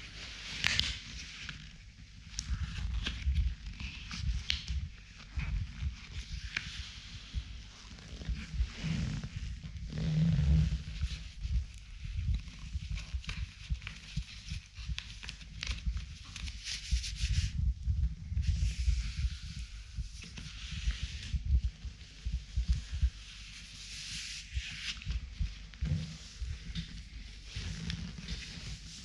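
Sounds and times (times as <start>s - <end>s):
low rumble: 1.8s - 29.0s
leather glove rubbing leather: 5.8s - 14.8s, 16.4s - 29.0s.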